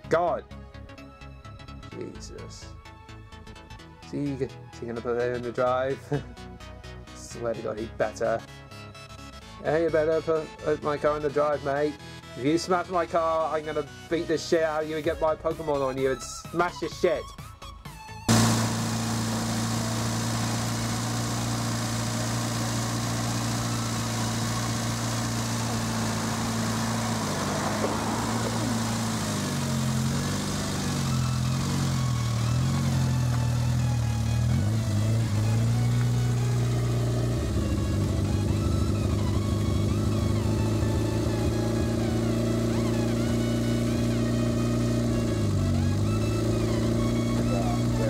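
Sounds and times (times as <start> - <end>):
held bass notes: 18.3 - 48.0.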